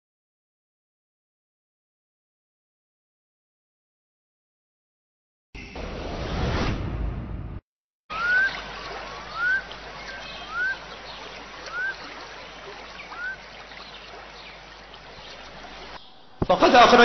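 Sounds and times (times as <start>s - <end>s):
bird rising whistle: 8.1s - 8.6s, 9.3s - 10.8s, 11.6s - 12.1s, 13.1s - 13.4s
running water: 8.1s - 17.0s.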